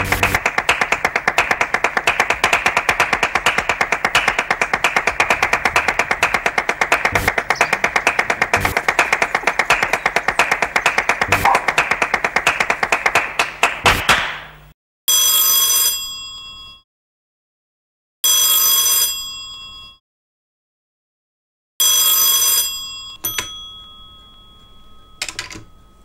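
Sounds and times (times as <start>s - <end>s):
handset clack: 0.0s - 13.7s
telephone bell ringing: 15.1s - 16.8s, 18.2s - 20.0s, 21.8s - 26.0s.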